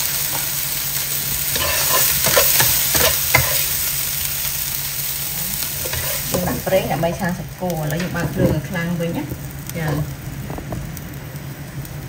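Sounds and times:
vegetables sizzling in stir-fry: 0.0 - 12.0
spatula scraping and tossing: 1.5 - 3.9, 5.5 - 7.1.

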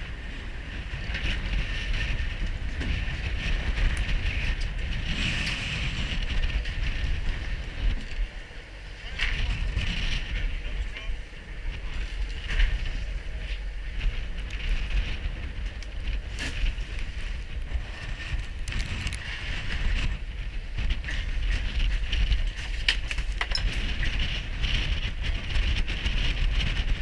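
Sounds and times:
choppy water: 0.0 - 27.0
wind buffeting microphone: 0.0 - 27.0
clicks and knocks of gear: 21.1 - 24.3.

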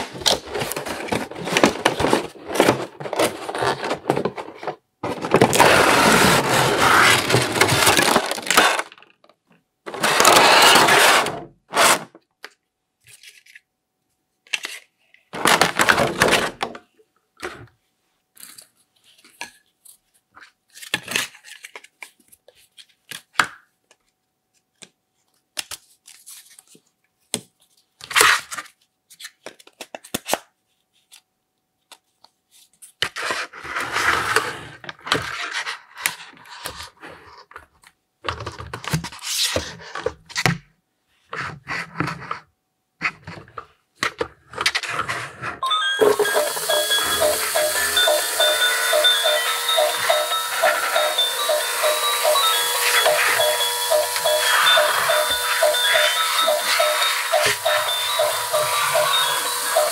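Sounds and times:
cardboard box scraping and rustling: 0.6 - 8.6.

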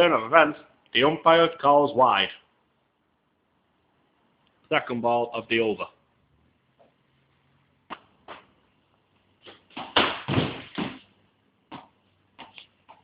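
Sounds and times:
cricket ball knocks and thumps: 7.9 - 8.5, 9.4 - 11.1.

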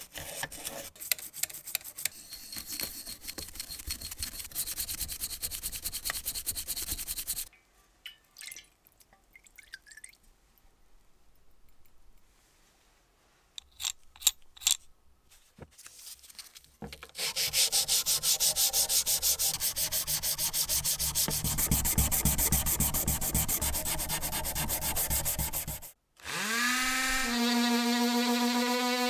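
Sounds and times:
hand scrubbing rusty metal: 0.0 - 7.5, 17.2 - 26.0.

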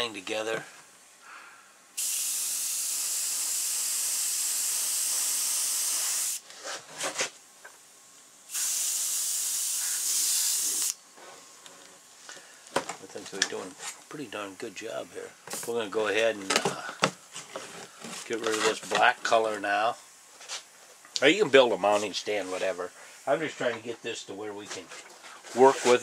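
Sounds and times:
airbrush air hiss: 1.9 - 6.4, 8.5 - 11.4.

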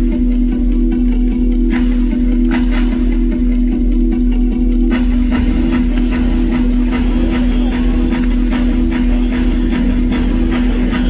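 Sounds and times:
drums and cymbals: 4.8 - 11.0.

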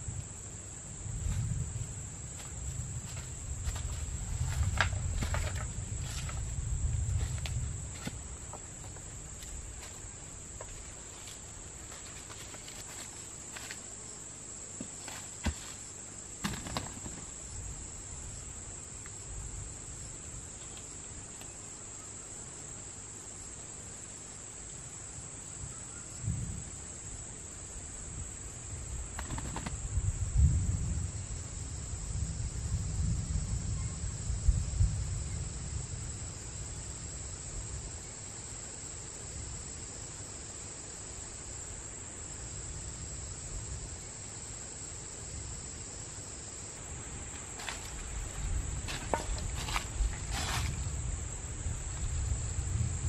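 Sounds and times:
high-pitched insect chorus: 0.0 - 53.0
footsteps in dry leaves: 46.8 - 50.9.

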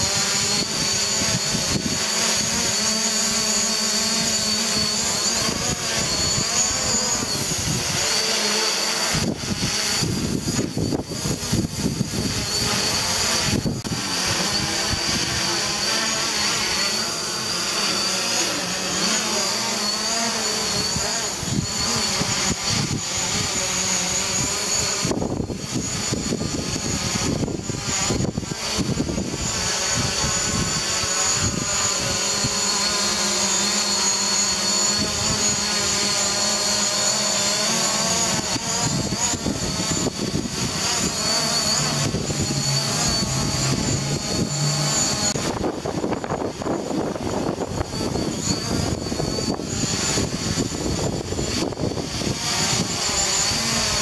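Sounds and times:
wind buffeting microphone: 0.0 - 2.8, 4.6 - 8.2, 8.9 - 17.1, 20.6 - 33.0, 37.9 - 54.0
drone propellers whining: 0.0 - 54.0.

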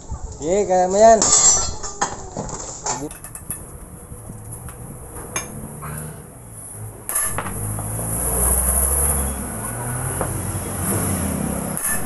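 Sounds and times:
low engine rumble: 2.2 - 11.8.

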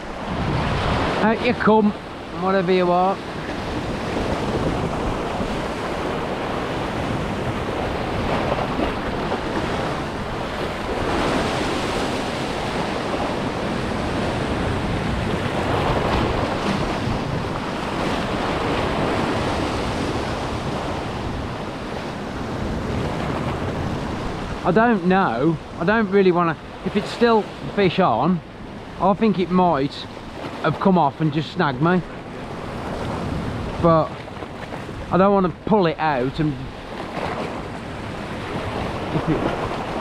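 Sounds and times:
sea swell washing around rocks: 0.0 - 28.0
wind blowing across microphone: 0.0 - 40.0.

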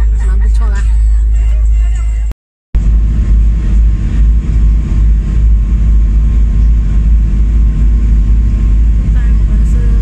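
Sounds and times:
ferry engine rumbling: 0.0 - 10.0.

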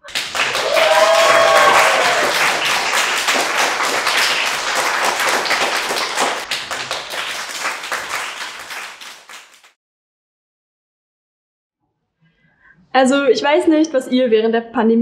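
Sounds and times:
audience clapping: 0.0 - 9.8.

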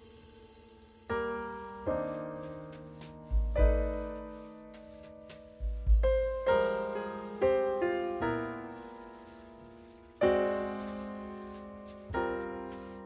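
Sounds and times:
slow piano chords: 0.0 - 13.0
deep piano bass notes: 1.9 - 9.0.

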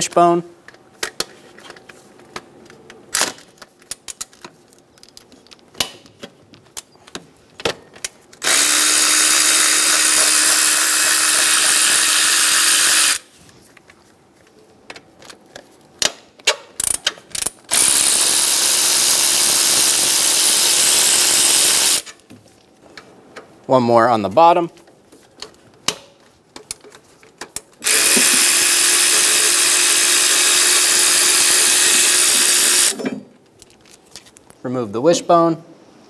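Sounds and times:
power ratchet spinning: 8.4 - 13.3, 16.8 - 22.1, 27.8 - 33.0.

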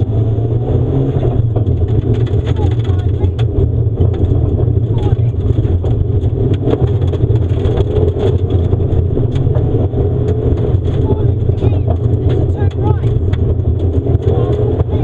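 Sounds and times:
car engine accelerating hard: 0.0 - 15.0
gravel pinging against underbody: 1.4 - 15.0.

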